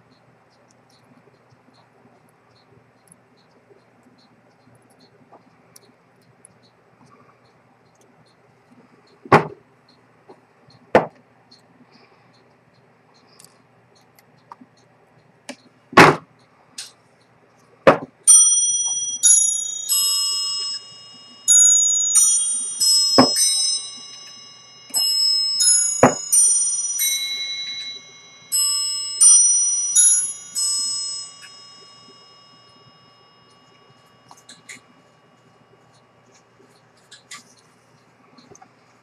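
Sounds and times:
high bell-like chimes: 18.3s - 35.5s.

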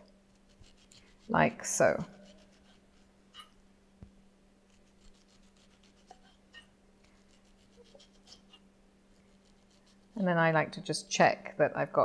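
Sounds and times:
knife scraping peel on board: 0.3s - 3.6s, 4.7s - 8.6s, 9.2s - 10.1s.

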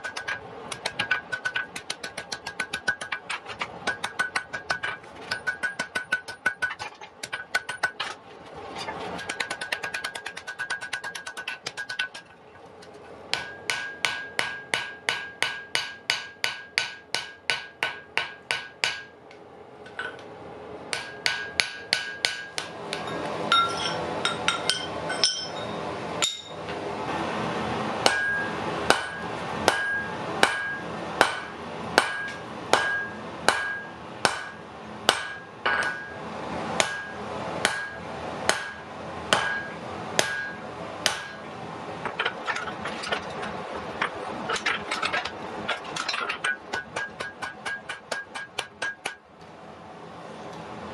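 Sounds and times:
hammer striking iron on anvil: 0.0s - 8.1s, 9.2s - 12.3s, 13.3s - 19.2s, 20.9s - 26.7s, 28.0s - 36.2s, 36.8s - 41.4s, 44.0s - 49.2s.

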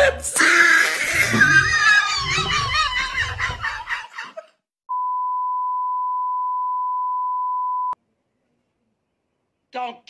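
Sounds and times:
steady test tone beep: 4.9s - 8.0s.

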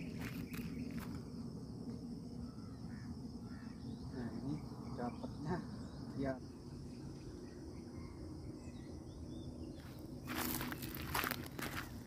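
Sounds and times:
light footsteps: 9.8s - 12.0s.

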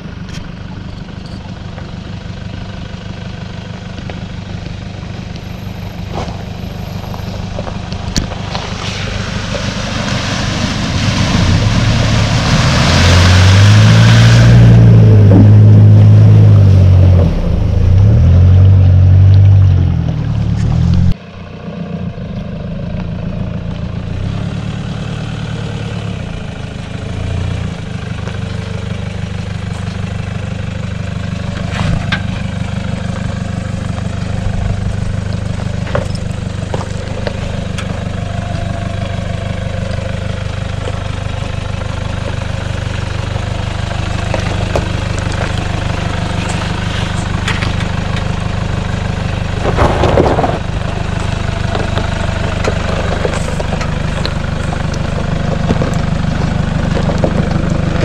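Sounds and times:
engine revving: 8.4s - 21.2s.

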